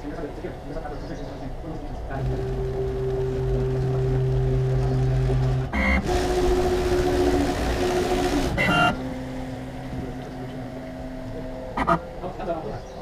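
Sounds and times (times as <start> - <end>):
cnc router motors whining: 0.0 - 13.0
burst of noise: 2.2 - 12.0.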